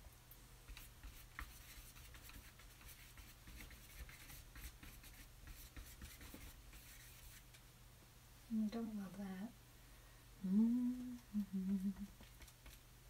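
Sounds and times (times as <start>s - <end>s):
steady low hum: 0.0s - 13.0s
paintbrush strokes on canvas: 0.7s - 7.5s.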